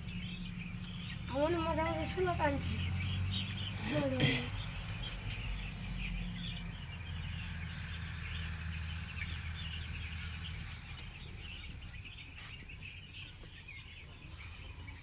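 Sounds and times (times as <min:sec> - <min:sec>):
chicks peeping: 0:00.0 - 0:15.0
low steady hum: 0:00.3 - 0:04.5.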